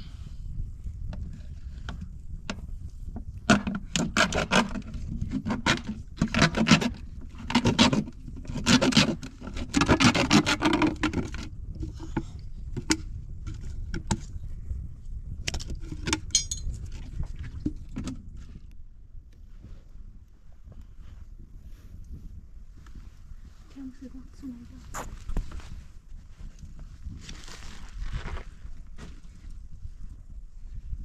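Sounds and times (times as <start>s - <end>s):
steady low rumble: 0.0s - 3.5s, 11.5s - 31.0s
rattling and scraping handling noises: 1.1s - 14.3s, 15.4s - 18.7s.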